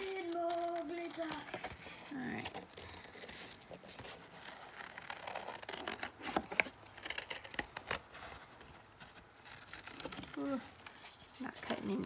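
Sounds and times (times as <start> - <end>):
scissors cutting cardboard: 0.0 - 12.0.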